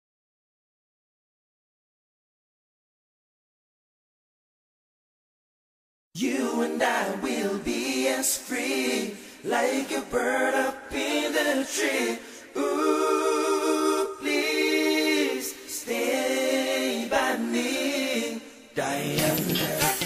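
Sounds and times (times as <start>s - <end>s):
vocal group singing a cappella: 6.2s - 20.0s.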